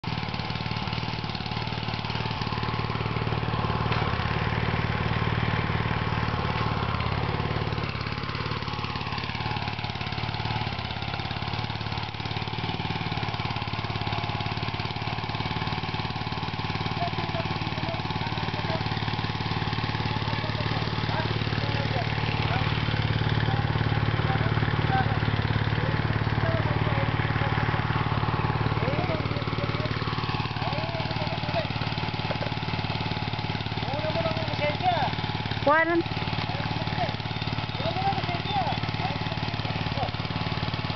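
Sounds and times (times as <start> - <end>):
small tractor engine running: 0.0 - 40.9.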